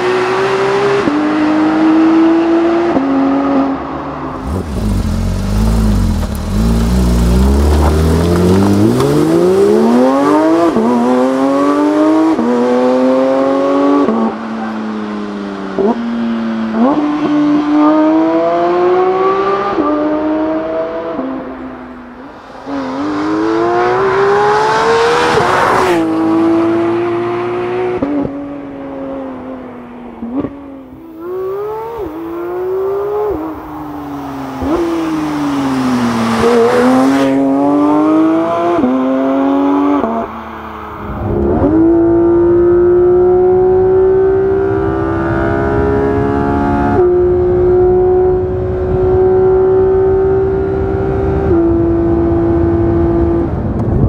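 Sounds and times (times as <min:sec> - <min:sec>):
car engine revving hard: 0:04.4 - 0:14.6, 0:22.7 - 0:29.1, 0:31.1 - 0:53.6.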